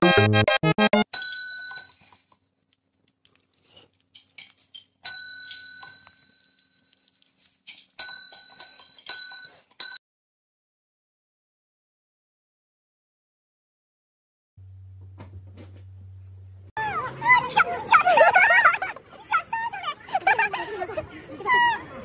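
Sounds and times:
service bell ringing: 1.1 - 2.1, 5.0 - 6.8, 8.0 - 10.0.

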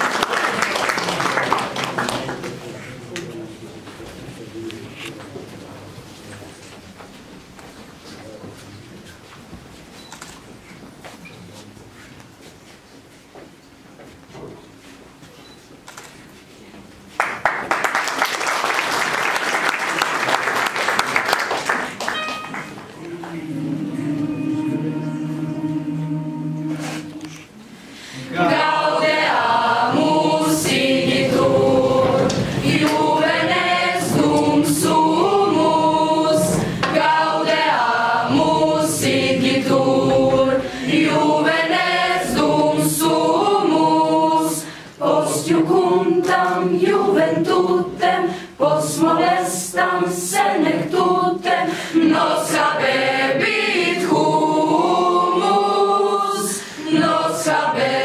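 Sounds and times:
children's choir singing unaccompanied: 0.0 - 2.4, 22.4 - 58.0.

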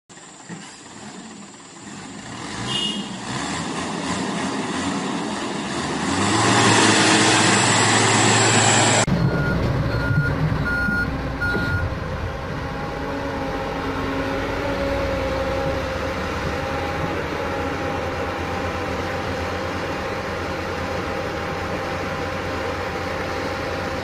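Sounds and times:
heavy machinery engines running: 0.1 - 24.0
short warning alarm beeps: 9.2 - 11.9.

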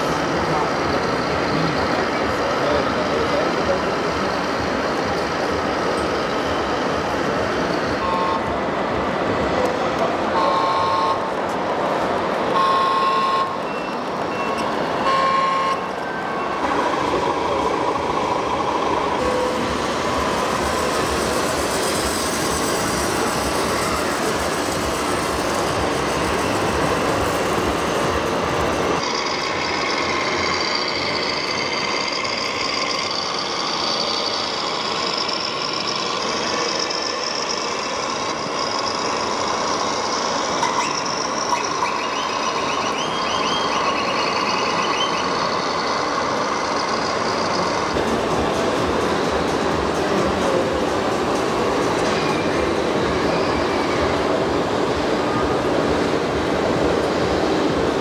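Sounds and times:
crowd chatter: 0.0 - 58.0
model trucks running: 0.0 - 58.0
short warning beeps: 12.6 - 16.6.

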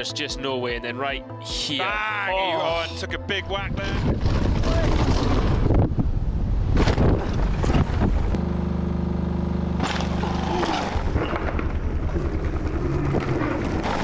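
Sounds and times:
wind noise: 3.6 - 8.4
motor drone with fast pulse: 8.3 - 14.0
bike tyres rolling: 9.8 - 14.0.

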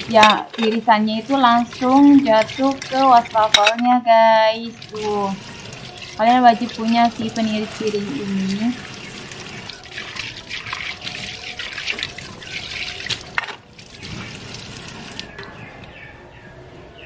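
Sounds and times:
water running into sink: 0.0 - 15.5
dishes knocking into plastic rack: 0.2 - 0.8.

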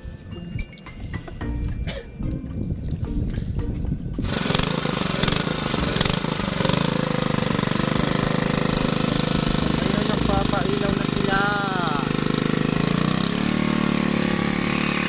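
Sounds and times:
boat engine chugging: 4.0 - 15.0.

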